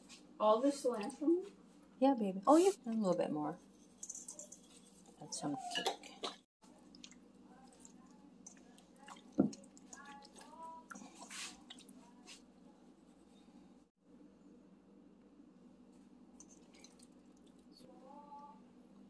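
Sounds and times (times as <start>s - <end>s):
wet squishing of kneaded meat: 6.6s - 12.4s, 16.4s - 17.8s.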